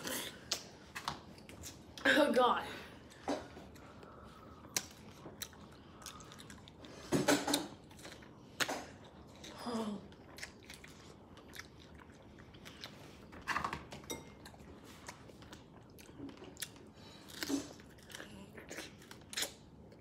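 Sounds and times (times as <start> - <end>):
wet biting and chewing: 3.7 - 13.8, 14.4 - 20.0.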